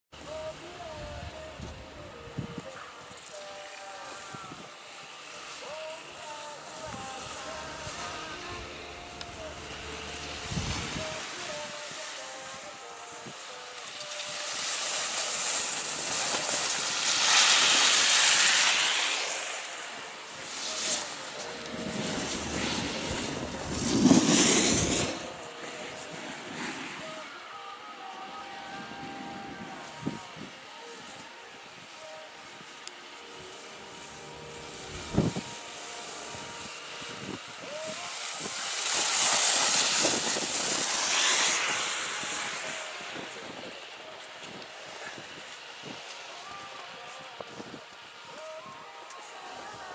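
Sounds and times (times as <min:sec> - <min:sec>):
skis scraping over snow: 0:02.4 - 0:49.9
wind on microphone: 0:06.8 - 0:13.5, 0:15.8 - 0:27.3, 0:28.7 - 0:32.0, 0:34.6 - 0:46.3.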